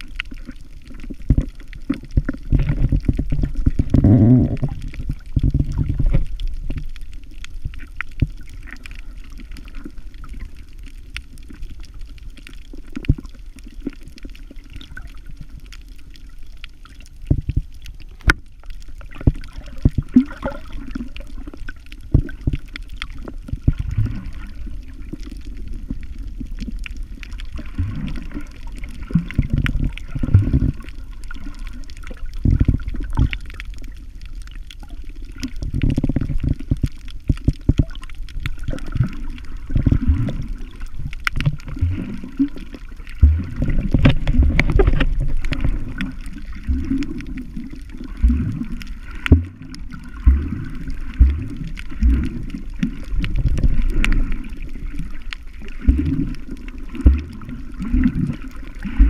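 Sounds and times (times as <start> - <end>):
muffled underwater sloshing: 0.0 - 59.0
small clicks and knocks: 17.2 - 20.0.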